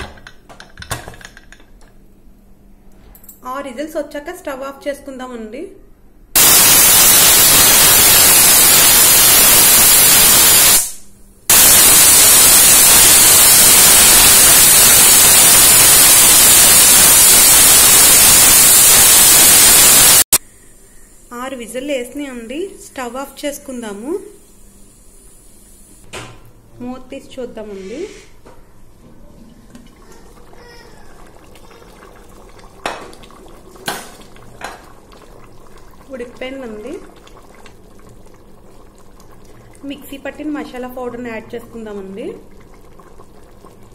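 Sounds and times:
pressure cooker whistling: 0:06.4 - 0:20.3
food bubbling: 0:29.2 - 0:43.9.

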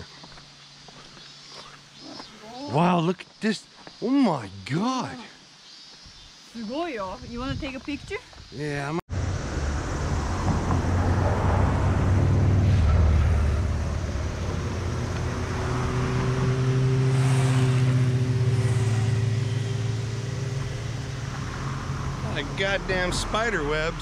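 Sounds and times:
vehicle engines passing: 0:09.1 - 0:24.0.

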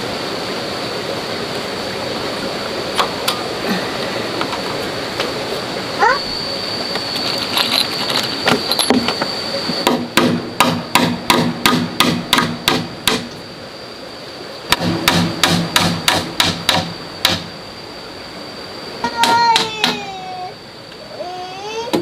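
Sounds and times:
steady high-pitched whine: 0:00.0 - 0:22.0
rapid hammer-like strikes: 0:09.8 - 0:13.3, 0:14.7 - 0:17.5.

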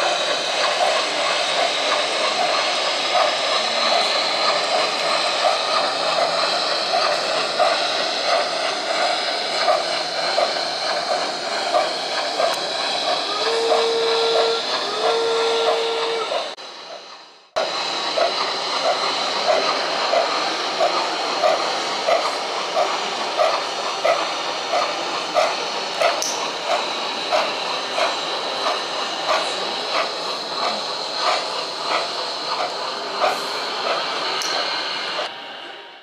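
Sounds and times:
steam hissing: 0:00.0 - 0:36.0
train whistle: 0:13.2 - 0:16.6.

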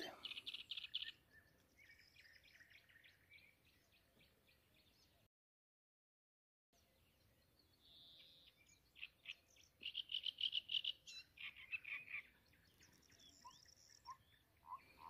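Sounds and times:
small bird singing: 0:00.0 - 0:05.3, 0:06.8 - 0:15.0.

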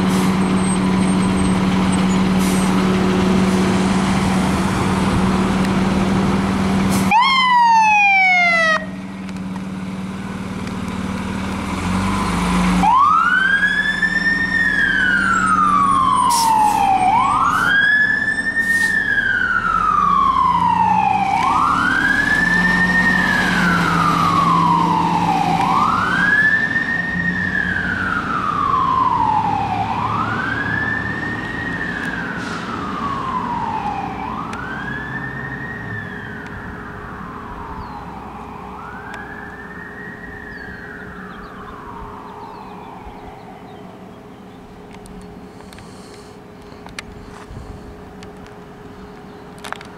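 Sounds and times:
fire engine engine running: 0:00.0 - 0:49.9
siren wailing: 0:07.1 - 0:09.0, 0:12.8 - 0:44.1
siren yelps: 0:07.1 - 0:09.0, 0:12.8 - 0:44.0.

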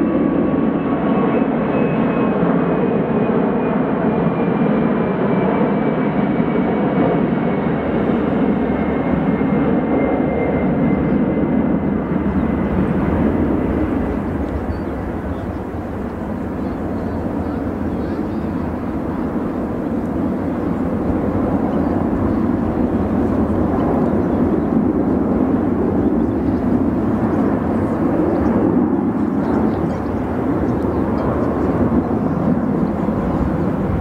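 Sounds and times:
jet airliner rushing noise: 0:11.0 - 0:34.0.

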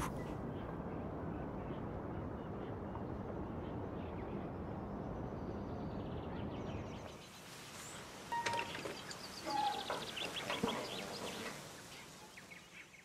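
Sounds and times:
faint bird chirps: 0:08.3 - 0:13.0.

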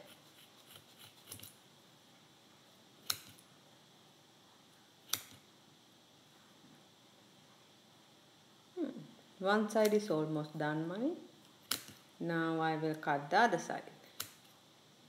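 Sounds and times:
scissors snipping yarn: 0:00.0 - 0:01.6, 0:03.0 - 0:03.4, 0:05.1 - 0:05.4, 0:09.8 - 0:10.0, 0:11.6 - 0:12.0, 0:14.1 - 0:14.5
scissor blades clicking: 0:00.7 - 0:01.6.

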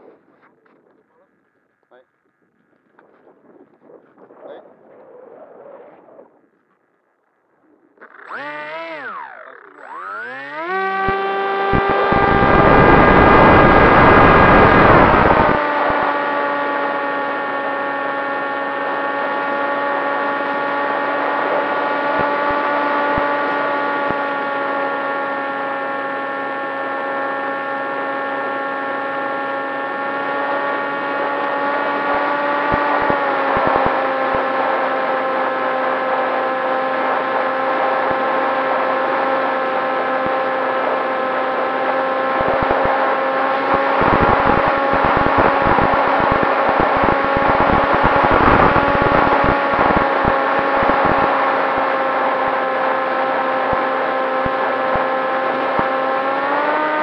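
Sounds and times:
electric motor whine: 0:07.6 - 0:57.0
low wind buffeting: 0:42.5 - 0:52.0
wind rush: 0:43.7 - 0:51.4.

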